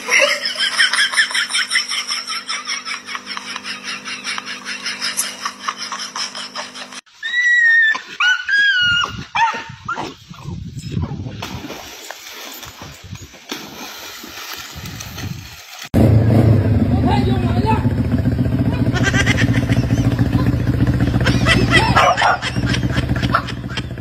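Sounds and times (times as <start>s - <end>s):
dog yelping and whining: 7.3s - 10.1s, 21.7s - 22.6s
low hum: 16.0s - 24.0s.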